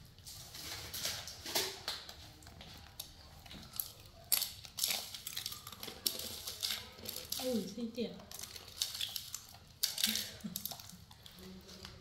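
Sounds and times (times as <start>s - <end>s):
monkeys crunching dry noodles: 0.0s - 12.0s.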